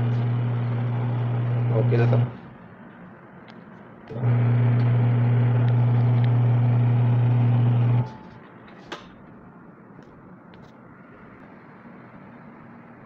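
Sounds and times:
washing machine motor humming: 0.0 - 2.6, 4.0 - 8.4.

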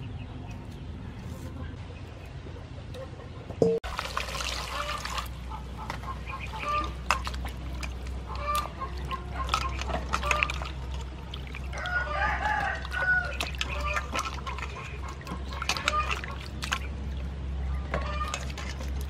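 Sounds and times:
chickens clucking: 1.4 - 3.8, 4.6 - 18.8
hands rubbing vegetables in water: 3.9 - 17.4.

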